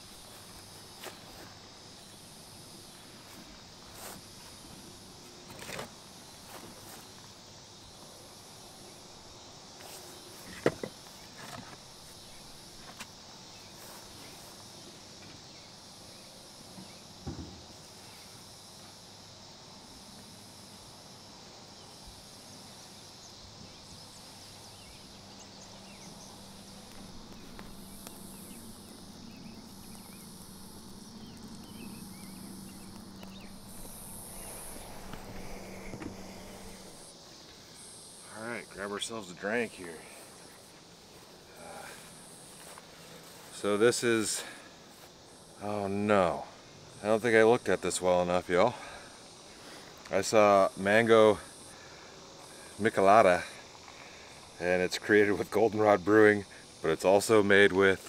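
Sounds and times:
insects droning: 0.0 - 58.0
fire crackling: 24.0 - 38.3
low steady hum: 25.2 - 37.2.

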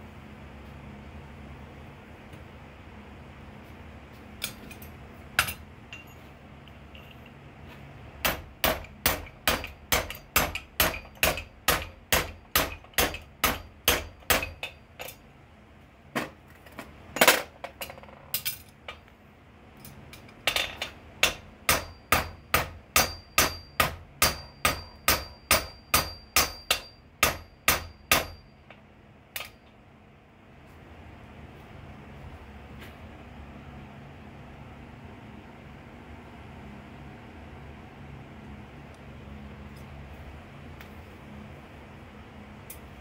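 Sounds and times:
high ringing tone: 5.9 - 6.3, 24.4 - 28.8
hammer striking steel on anvil: 8.2 - 15.2, 21.2 - 28.8.

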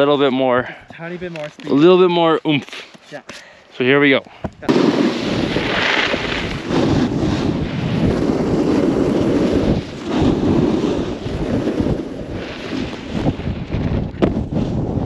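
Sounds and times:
wind rushing over microphone: 4.5 - 15.0
snowboard edges scraping snow: 4.6 - 15.0.

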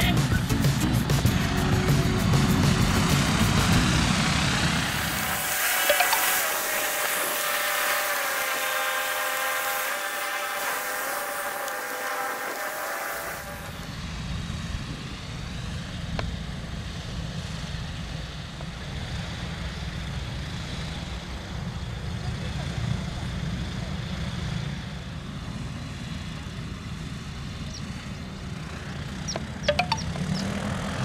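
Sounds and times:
propeller engines running: 0.0 - 31.0.

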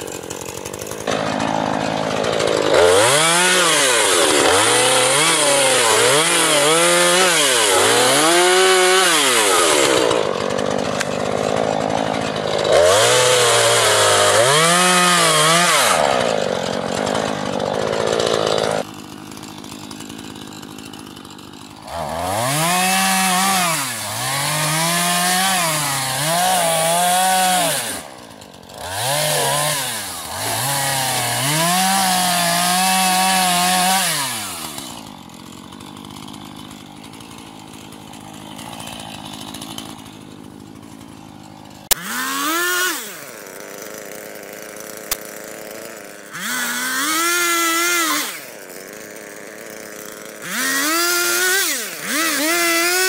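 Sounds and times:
chainsaw revving: 0.0 - 53.0.

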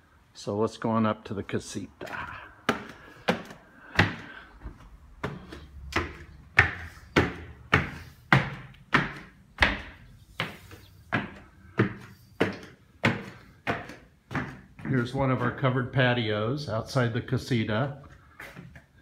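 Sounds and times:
footsteps on hard stairs: 2.0 - 15.8, 17.8 - 19.0.

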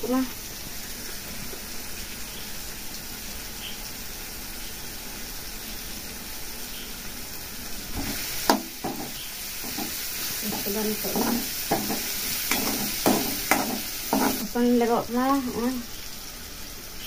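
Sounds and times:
vegetables sizzling in a wok: 0.0 - 17.0
spatula knocking on metal pan: 8.0 - 14.4.

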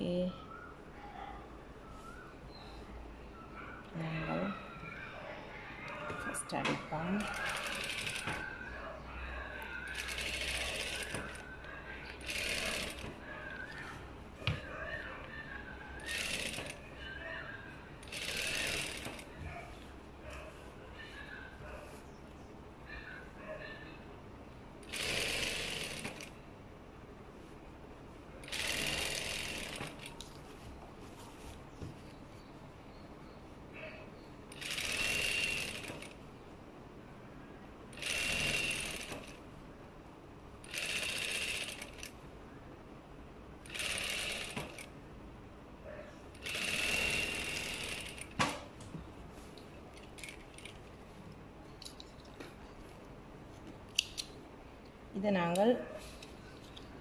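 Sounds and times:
sewing machine stitching: 7.1 - 8.5, 9.9 - 11.4, 12.2 - 13.2, 16.0 - 16.8, 18.0 - 19.3, 24.8 - 26.3, 28.4 - 30.1, 34.5 - 36.2, 38.0 - 39.4, 40.7 - 42.1, 43.6 - 44.9, 46.4 - 48.4
fabric handling: 29.7 - 32.6.

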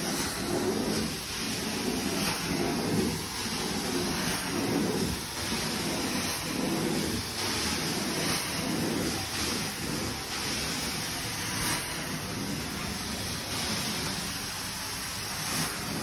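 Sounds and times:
carpet cleaner wand suction: 0.0 - 14.2.

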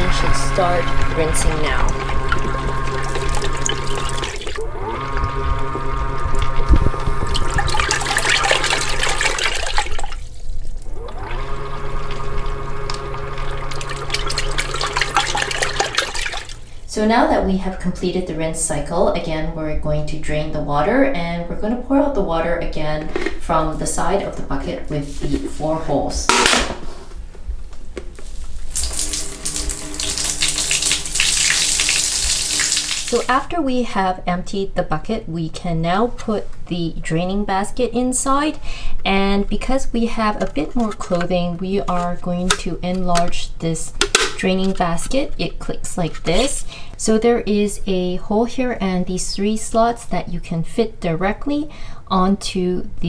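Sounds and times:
washing machine motor humming: 0.0 - 17.1, 28.3 - 33.6
water pouring and splashing: 1.4 - 4.6, 7.2 - 11.1, 13.4 - 16.7, 28.6 - 33.3
water and clothes sloshing: 13.6 - 16.6.

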